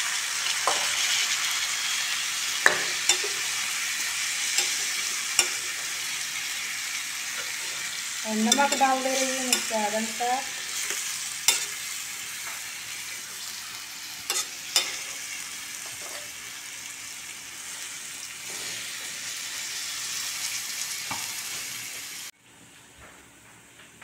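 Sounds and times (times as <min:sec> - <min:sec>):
vegetables sizzling in oil: 0:00.0 - 0:22.3
spatula knocking on pan: 0:02.6 - 0:03.2
spatula stirring: 0:07.3 - 0:11.9, 0:14.3 - 0:15.2.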